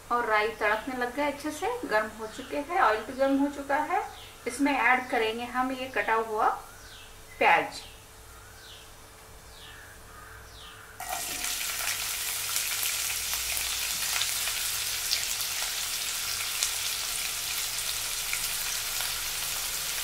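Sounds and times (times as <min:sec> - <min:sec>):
onion sizzling in hot oil: 0:11.0 - 0:20.0.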